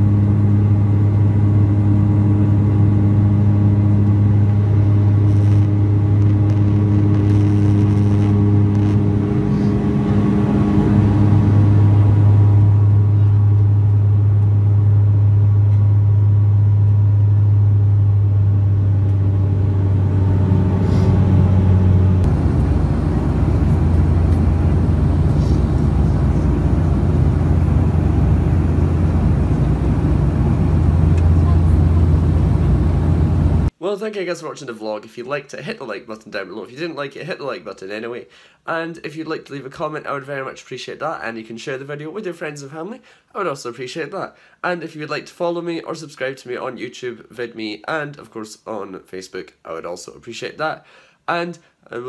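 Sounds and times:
turboprop cabin drone: 0.0s - 33.7s.

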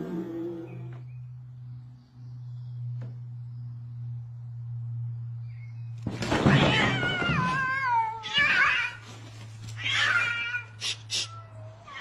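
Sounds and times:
cats fighting and yowling: 6.0s - 12.0s.

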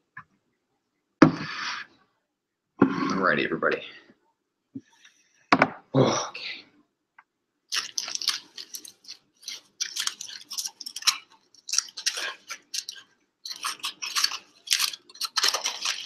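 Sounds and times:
aluminium foil crinkling: 7.7s - 16.0s.

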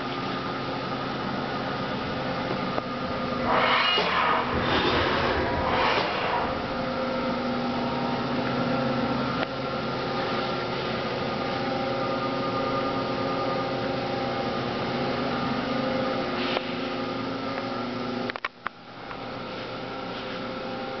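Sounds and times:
machinery humming: 0.0s - 14.8s.

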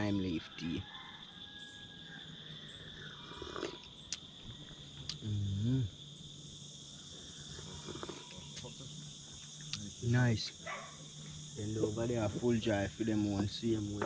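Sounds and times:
insects droning: 0.0s - 14.0s
man humming low: 5.1s - 6.0s.

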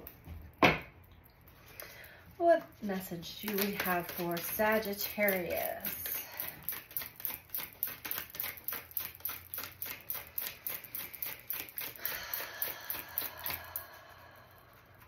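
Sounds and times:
cards being shuffled: 3.4s - 12.0s.

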